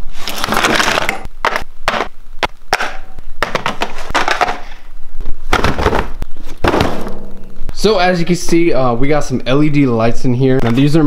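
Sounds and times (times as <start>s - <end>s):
boxes knocking on workbench: 2.7s - 4.6s, 5.5s - 7.1s.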